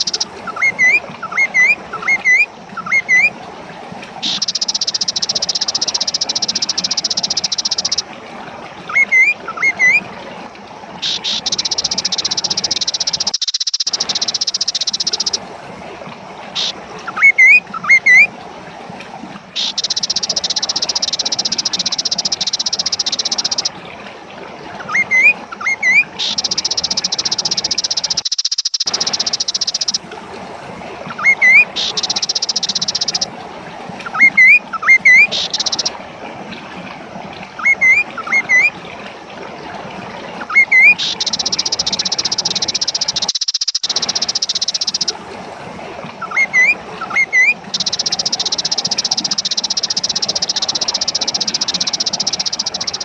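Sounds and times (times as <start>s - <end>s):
buzzy reeling bird song: 0.0s - 3.3s, 4.2s - 8.0s, 8.9s - 10.0s, 11.0s - 15.4s, 16.5s - 18.3s, 19.4s - 23.8s, 24.8s - 30.0s, 31.1s - 33.3s, 34.0s - 36.0s, 37.6s - 38.7s, 40.4s - 45.2s, 46.2s - 53.0s
short rising bird chirps: 11.0s - 15.4s, 24.9s - 30.0s, 40.5s - 45.1s.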